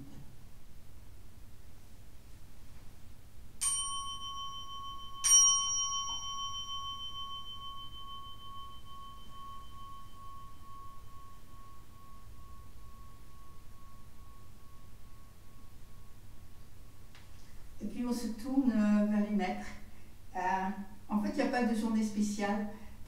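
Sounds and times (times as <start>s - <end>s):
bowl bell struck and ringing: 3.6s - 17.1s.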